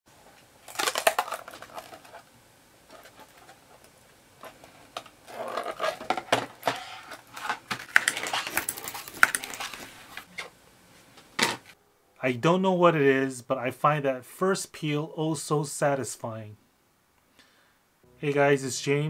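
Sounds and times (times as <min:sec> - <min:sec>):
plastic part crackling and snapping: 0:00.7 - 0:02.2, 0:07.3 - 0:09.8.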